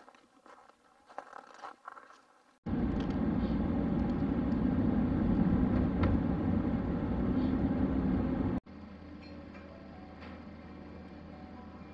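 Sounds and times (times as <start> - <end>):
steady low rumble: 2.7 - 8.6.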